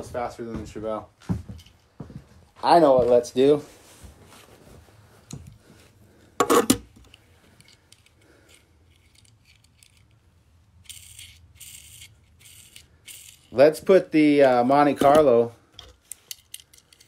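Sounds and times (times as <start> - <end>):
toy cars clinking and rattling: 7.1 - 13.9, 15.9 - 17.0.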